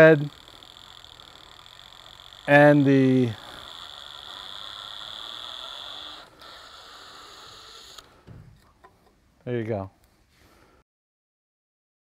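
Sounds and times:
cordless drill motor whining: 0.0s - 8.4s.

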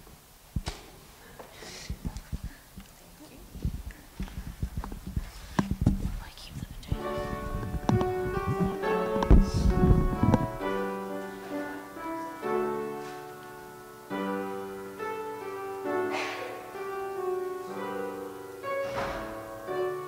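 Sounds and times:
slow keyboard chords: 6.8s - 20.0s.

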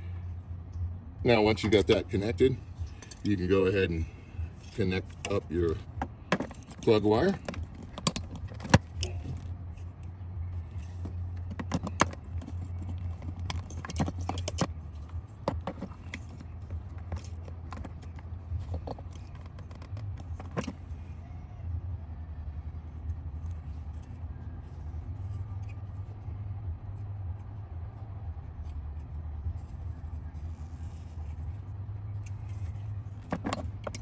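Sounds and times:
steady low rumble: 0.0s - 34.0s.

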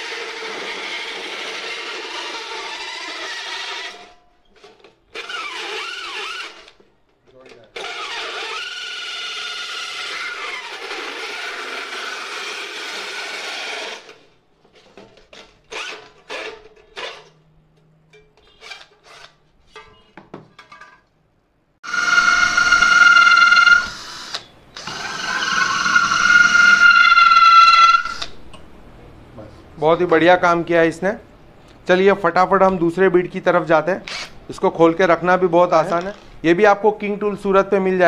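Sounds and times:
drill cutting sheet metal: 0.0s - 4.2s, 5.2s - 6.8s, 7.8s - 14.3s, 21.8s - 28.4s
drill motor whine cutting wood: 7.8s - 14.2s, 21.8s - 28.4s.

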